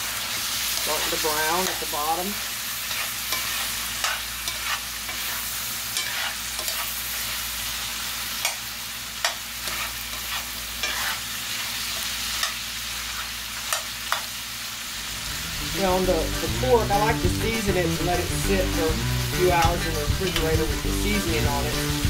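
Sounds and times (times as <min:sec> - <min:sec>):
meat sizzling in a pot: 0:00.0 - 0:22.0
metal spoon scraping a pot: 0:09.7 - 0:11.2.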